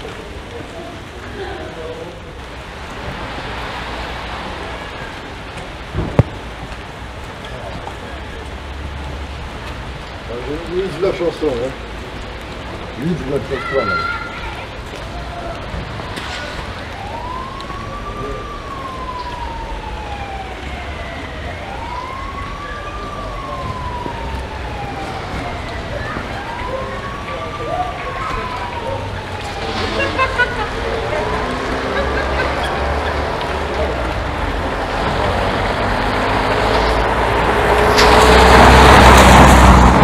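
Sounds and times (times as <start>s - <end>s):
low city rumble: 0.0s - 40.0s
emergency vehicle siren wailing: 15.0s - 40.0s
car approaching: 24.7s - 40.0s.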